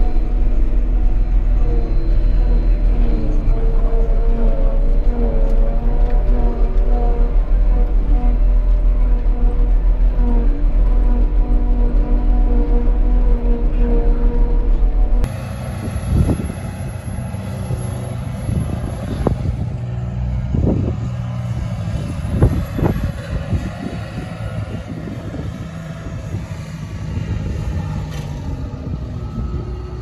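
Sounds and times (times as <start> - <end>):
wheel loader diesel engine: 0.0 - 30.0.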